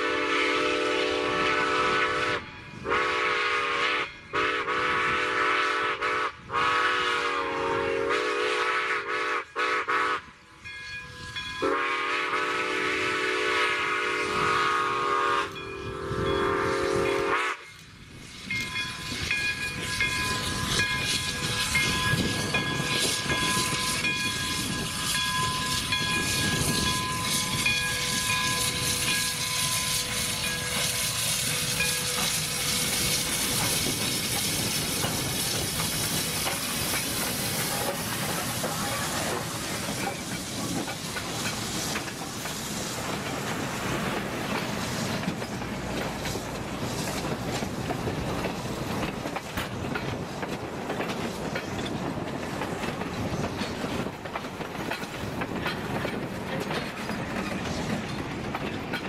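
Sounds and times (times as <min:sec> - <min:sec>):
steam whistle chord: 0:00.0 - 0:10.4, 0:11.2 - 0:17.8
steam hissing: 0:11.1 - 0:59.0
train wheels clicking over rail joints: 0:15.4 - 0:59.0.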